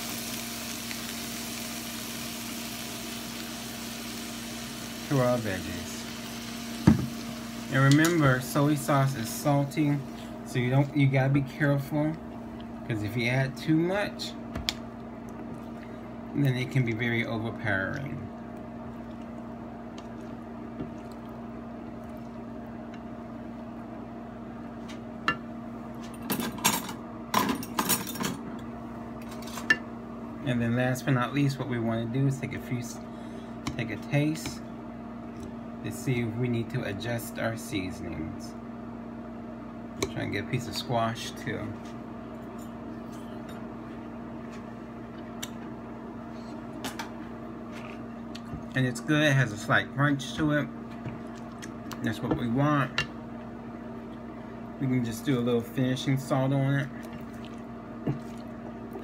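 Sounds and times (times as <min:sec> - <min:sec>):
vegetables sizzling in a frying pan: 0:00.0 - 0:10.2
steady low hum: 0:00.0 - 0:59.0.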